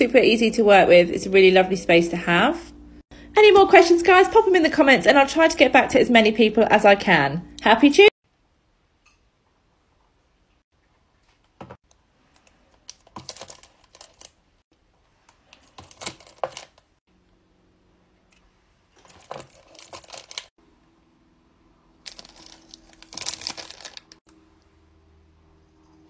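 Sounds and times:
plastic wrappers crinkling: 12.3s - 14.4s, 15.3s - 17.0s, 19.0s - 20.5s, 22.0s - 24.2s.

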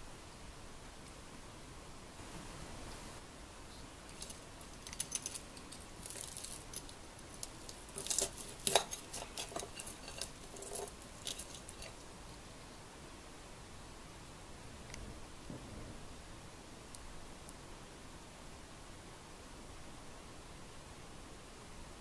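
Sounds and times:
metal spoons scraping a ceramic plate: 4.2s - 12.1s.

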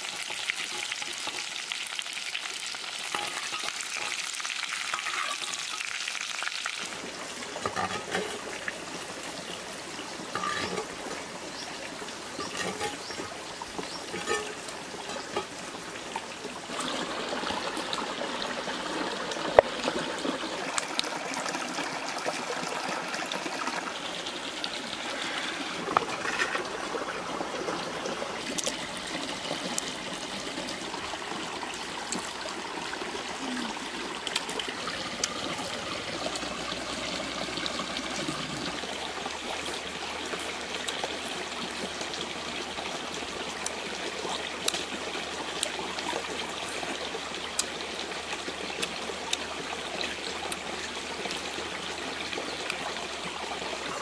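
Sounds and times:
running water: 0.0s - 54.0s.

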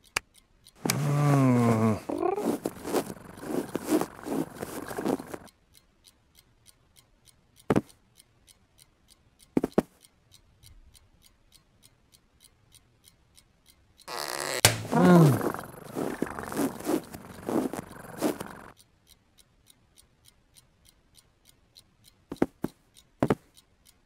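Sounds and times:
clock ticking: 0.0s - 24.0s
scratchy rustling: 0.9s - 5.5s, 14.1s - 18.8s
sharp knocks: 14.6s - 15.1s.

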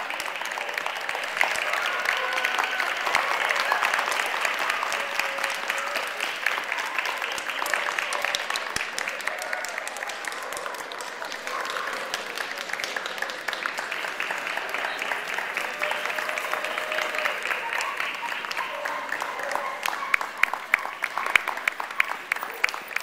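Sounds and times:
audience applauding: 0.0s - 23.0s
voices in crowd: 0.0s - 23.0s.

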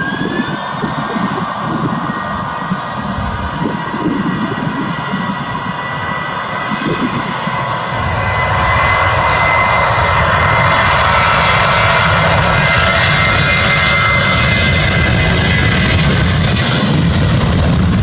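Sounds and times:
jet engines roaring: 0.0s - 18.0s.

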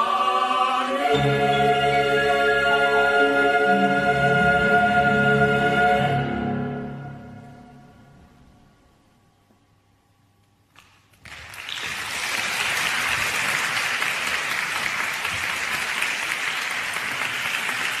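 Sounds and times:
audience applause: 11.2s - 18.0s.

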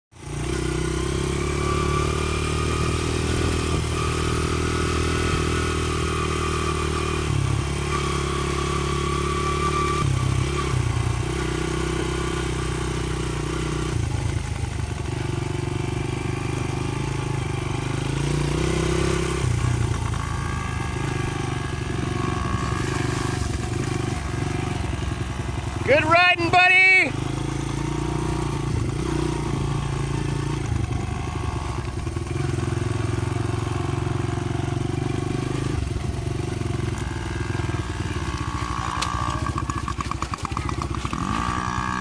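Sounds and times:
dirt bike engine running: 0.1s - 42.0s.

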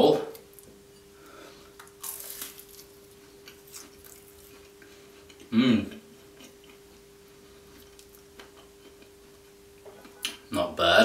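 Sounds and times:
faint chewing: 1.7s - 10.4s
pastry crunching bite: 2.0s - 4.3s.

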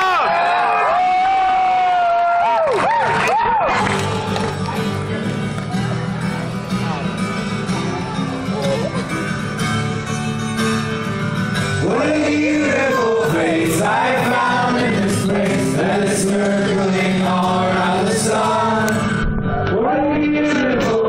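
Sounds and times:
strummed acoustic guitar: 3.7s - 21.0s
man singing: 11.7s - 21.0s.

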